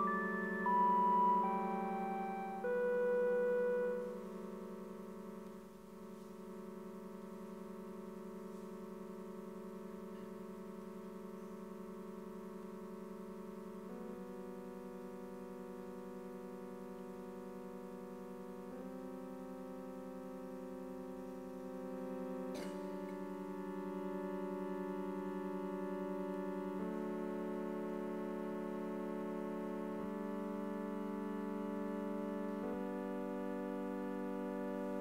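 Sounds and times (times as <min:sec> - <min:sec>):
sustained synthesizer chord: 0:00.0 - 0:35.0.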